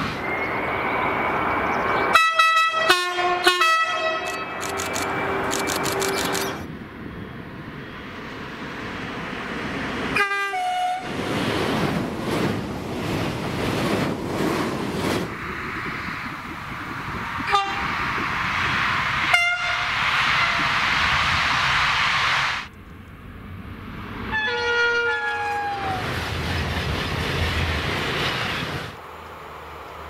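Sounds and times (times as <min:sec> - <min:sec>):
train passing at speed: 0:00.0 - 0:30.0
train horn blasts: 0:02.1 - 0:04.6, 0:10.2 - 0:11.1, 0:17.5 - 0:17.9, 0:19.3 - 0:20.6, 0:24.3 - 0:26.0.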